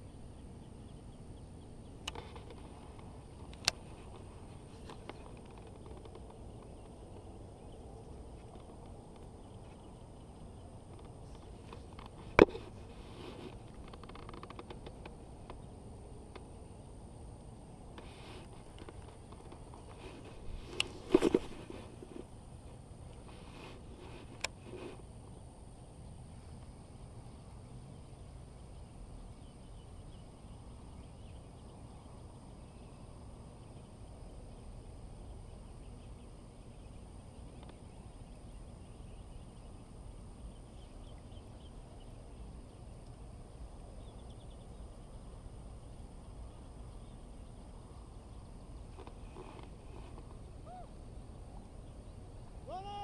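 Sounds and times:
faint high hiss: 0:00.0 - 0:53.0
faint chirps: 0:23.2 - 0:53.0.

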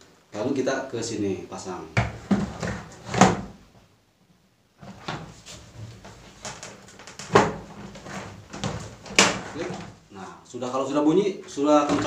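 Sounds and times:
plastic rattles: 0:05.9 - 0:10.0
plastic panel knocks and clicks: 0:06.4 - 0:09.9.

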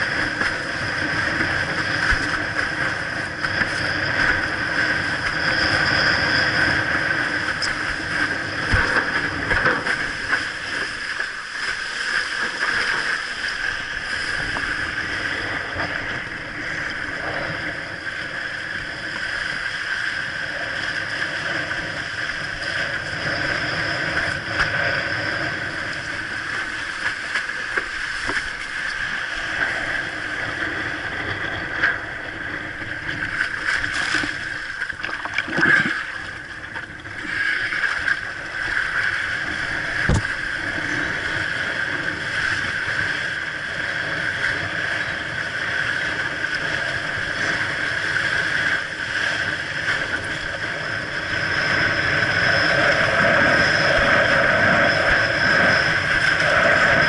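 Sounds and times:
wind buffeting microphone: 0:00.0 - 0:11.4, 0:12.3 - 0:57.0
water rushing past board: 0:32.7 - 0:41.5.

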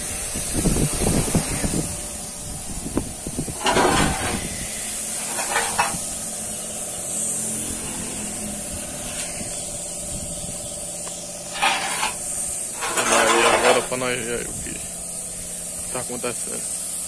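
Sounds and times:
compressed air hissing: 0:00.0 - 0:17.0
metallic clatter: 0:03.4 - 0:06.4, 0:11.5 - 0:14.1.

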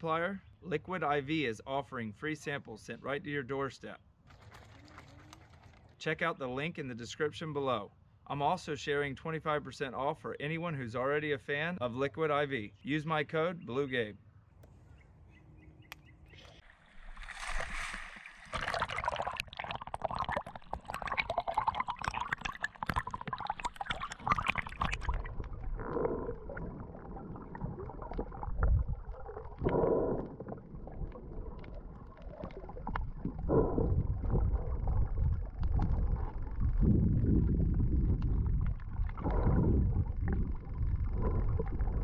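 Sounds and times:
water splashing and sloshing: 0:04.2 - 0:06.0, 0:16.5 - 0:42.0
underwater bubbling: 0:16.6 - 0:42.0
muffled underwater rumble: 0:21.0 - 0:42.0.

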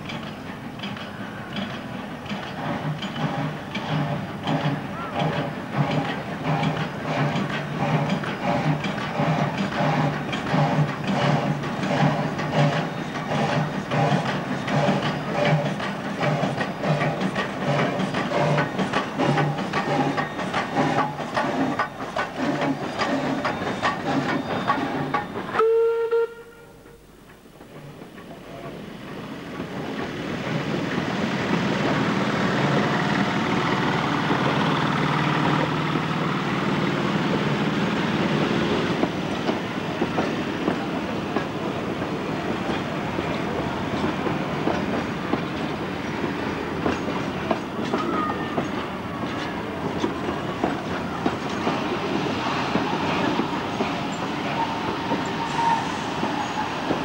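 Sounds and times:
train wheels clicking over rail joints: 0:00.0 - 0:25.7, 0:27.0 - 0:57.0
steam locomotive moving: 0:00.0 - 0:57.0
steam whistle toot: 0:25.6 - 0:27.1, 0:54.6 - 0:56.7.

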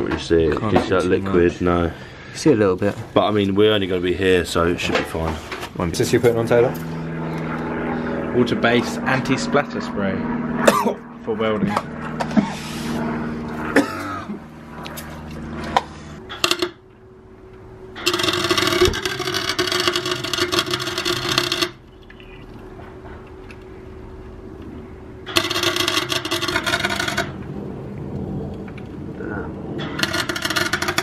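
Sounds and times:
welder arc crackling: 0:18.0 - 0:22.2, 0:23.5 - 0:27.6, 0:29.8 - 0:31.0.

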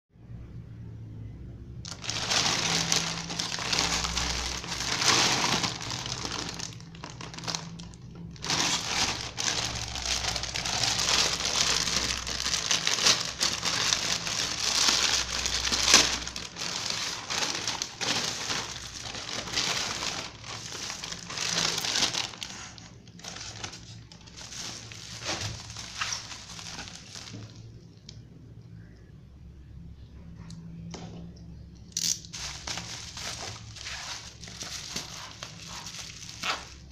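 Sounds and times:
plastic mailer bag crinkling: 0:01.8 - 0:27.7, 0:32.3 - 0:36.9.

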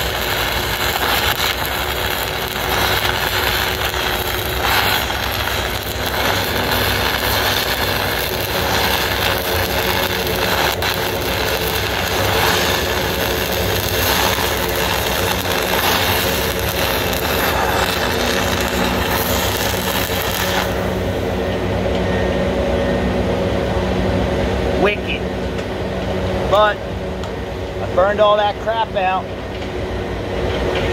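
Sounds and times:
welding arc crackling: 0:00.0 - 0:21.9
low mechanical hum: 0:00.0 - 0:30.9.

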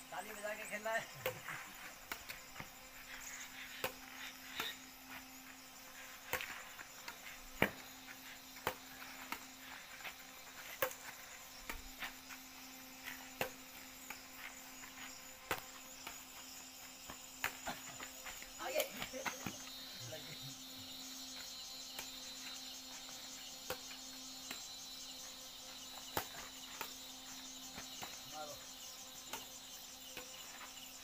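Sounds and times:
high insect drone: 0:00.0 - 0:31.0.

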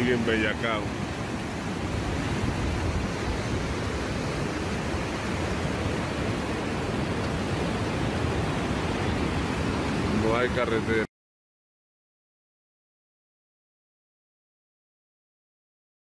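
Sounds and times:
flooded river rushing: 0:00.0 - 0:11.1.

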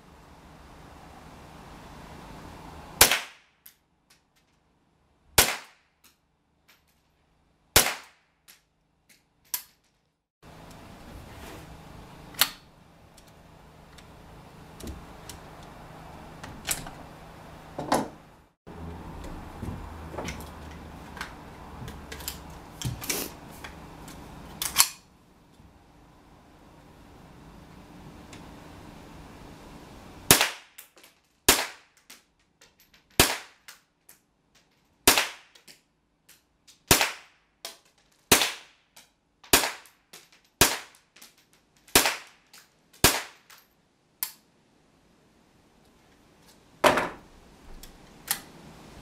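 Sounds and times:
rifle shots cracking: 0:03.0 - 0:03.4, 0:05.4 - 0:05.8, 0:07.8 - 0:08.2.

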